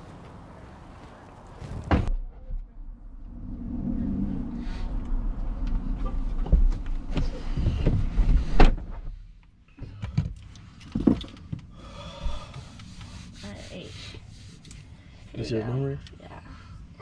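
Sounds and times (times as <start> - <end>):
low outdoor rumble: 0.0 - 9.8.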